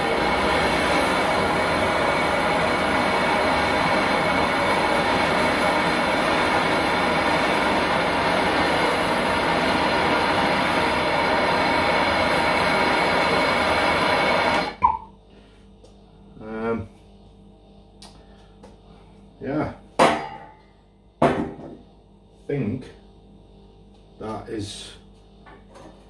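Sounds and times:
blowtorch flame hissing: 0:00.0 - 0:14.8
blowtorch shut-off pop: 0:00.0 - 0:15.0.

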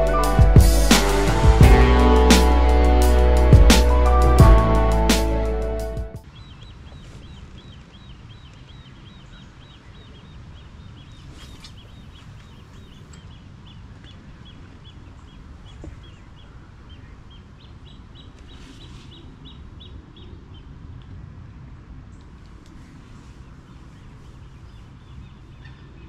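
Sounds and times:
steady low rumble: 0:00.0 - 0:06.2.

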